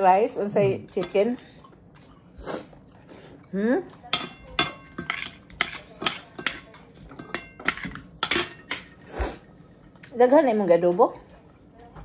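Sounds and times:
cutlery clinking on plates: 3.4 - 9.0.

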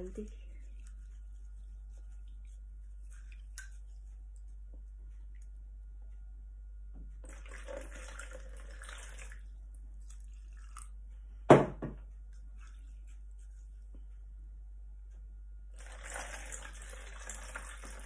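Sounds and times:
water splashing into a bowl: 7.2 - 9.4, 15.8 - 18.0
sharp knocks: 11.5 - 12.0.

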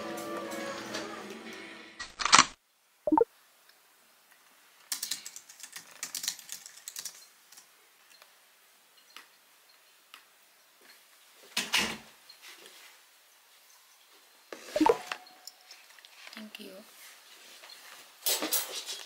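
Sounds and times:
computer keyboard typing: 4.9 - 7.7.

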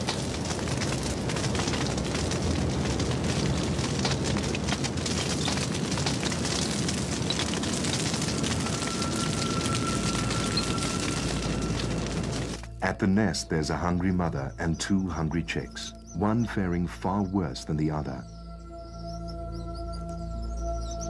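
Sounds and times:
fire roaring low: 0.0 - 14.2
fire crackling: 0.0 - 21.0.

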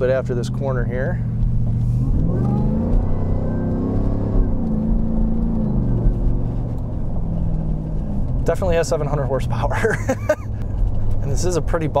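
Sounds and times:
engine accelerating hard: 1.4 - 10.6.

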